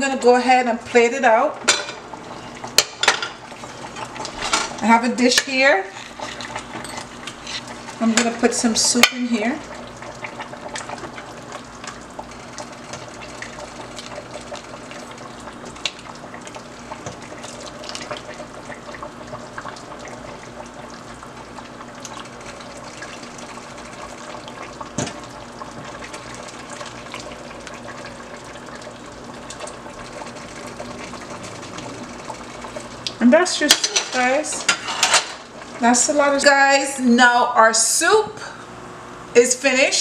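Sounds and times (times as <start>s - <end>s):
steady low hum: 0.0s - 40.0s
liquid pouring and splashing: 9.6s - 33.2s.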